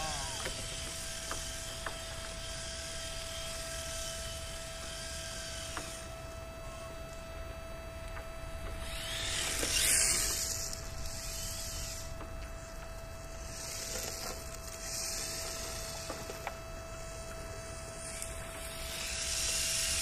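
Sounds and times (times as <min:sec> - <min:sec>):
rc car tyres hissing on asphalt: 0:08.8 - 0:12.7, 0:13.4 - 0:16.4, 0:17.0 - 0:20.0.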